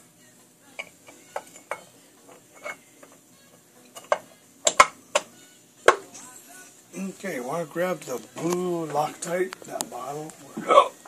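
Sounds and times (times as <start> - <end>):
metal cover clinking and tapping: 3.9 - 5.3.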